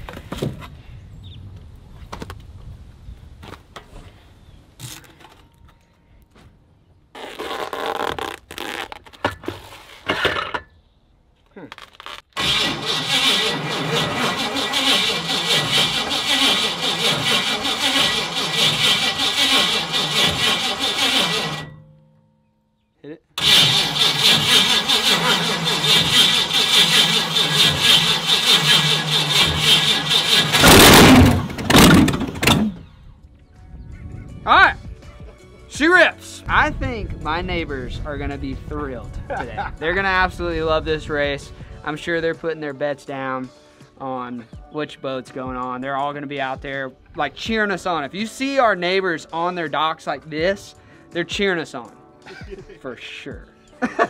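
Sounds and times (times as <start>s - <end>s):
duct tape tearing: 4.8s - 5.4s, 7.1s - 10.0s, 11.6s - 21.6s
engine firing bursts: 12.4s - 21.7s, 23.4s - 32.9s
starter cranking engine: 12.4s - 21.7s, 23.4s - 32.9s.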